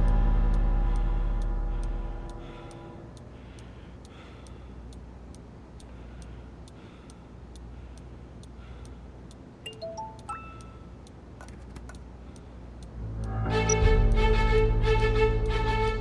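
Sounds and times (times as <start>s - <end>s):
clock ticking: 0.0s - 16.0s
faint low hum: 0.0s - 16.0s
soft musical notes: 9.7s - 10.7s, 13.0s - 16.0s.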